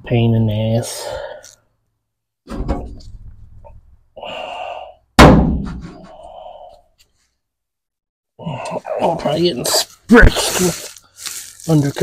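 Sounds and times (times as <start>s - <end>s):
loud ringing thunk: 5.2s - 6.0s.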